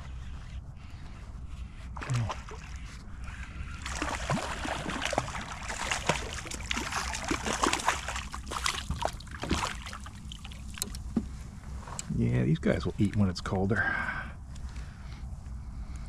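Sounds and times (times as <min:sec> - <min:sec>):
fish splashing in water: 0:02.0 - 0:10.9.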